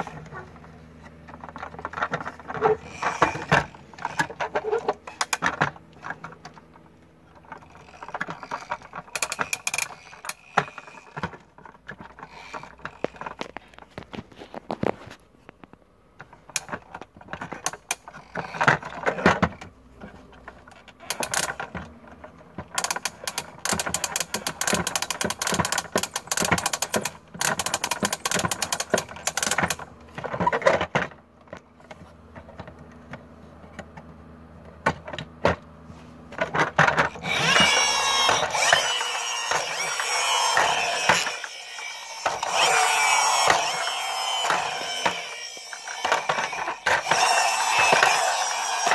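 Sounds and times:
toy friction motor whirring: 2.5s - 5.6s, 7.5s - 14.9s, 17.6s - 19.4s, 22.8s - 29.8s, 36.9s - 48.9s
toy ratchet clicking: 7.6s - 11.3s, 12.2s - 13.4s, 22.8s - 29.8s, 37.1s - 48.9s.

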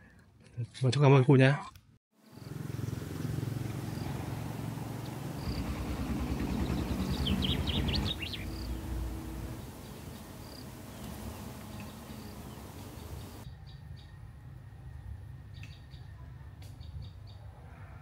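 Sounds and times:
small birds chirping: 2.2s - 13.8s.

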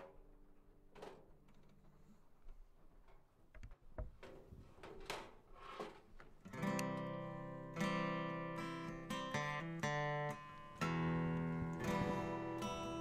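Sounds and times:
strummed acoustic guitar: 6.5s - 13.0s.

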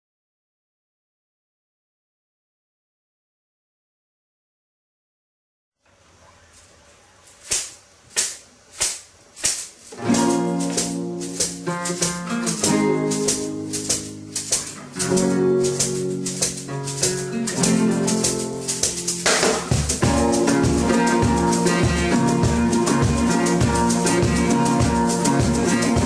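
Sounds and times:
sharp percussive strokes: 7.3s - 26.0s
instrumental music with steady beat: 7.4s - 26.0s.

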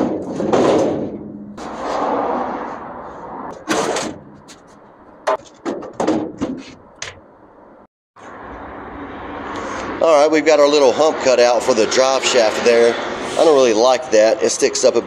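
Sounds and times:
knocks and clanks on truck: 0.0s - 1.6s, 3.5s - 7.3s.

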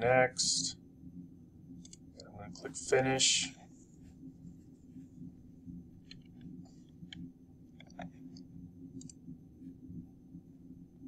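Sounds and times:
low steady hum: 0.0s - 11.0s
computer mouse clicks: 1.8s - 2.3s, 6.0s - 9.2s.

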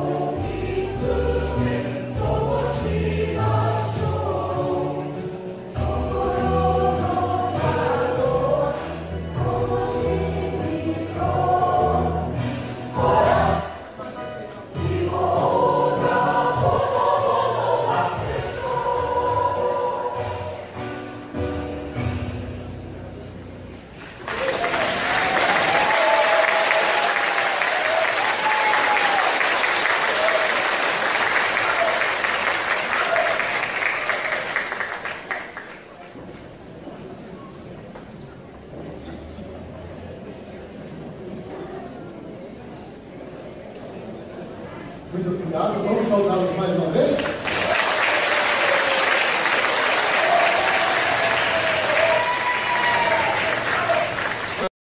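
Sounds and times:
audience applauding: 24.0s - 36.0s, 47.2s - 54.7s.

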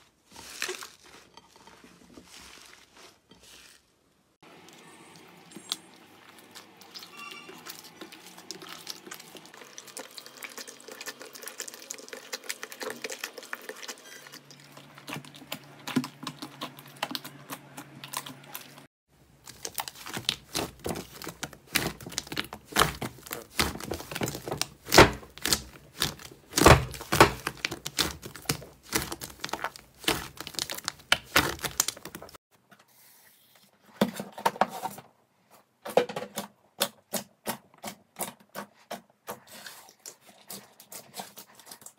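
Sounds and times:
hands squishing slime: 19.4s - 32.4s.

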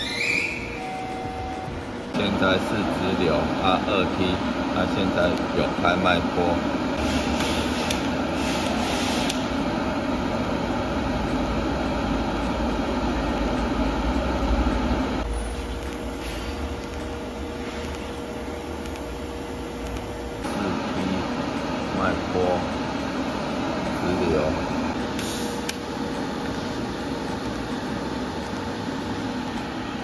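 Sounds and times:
mechanical hum: 0.0s - 30.0s
welding arc buzzing: 0.0s - 30.0s
single steady tone: 0.5s - 1.8s.

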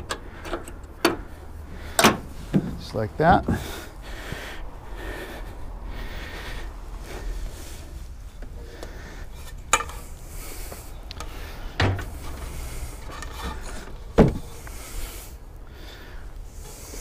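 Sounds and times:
ladder ramp rubbing and scraping: 9.9s - 15.2s.

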